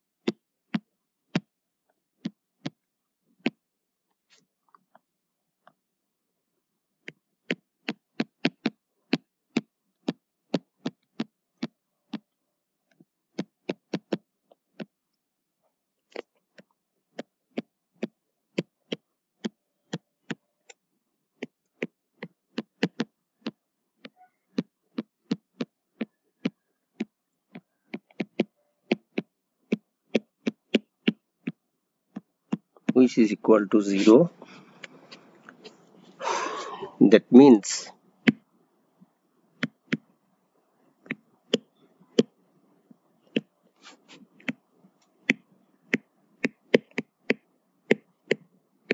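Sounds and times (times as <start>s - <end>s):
stylus tapping on tablet: 0.2s - 1.5s, 2.2s - 2.8s, 7.0s - 12.3s, 12.9s - 15.0s, 16.1s - 20.8s, 21.4s - 33.0s, 38.2s - 38.5s, 39.6s - 40.1s, 41.0s - 42.3s, 43.3s - 43.5s, 44.4s - 44.6s, 45.2s - 48.9s.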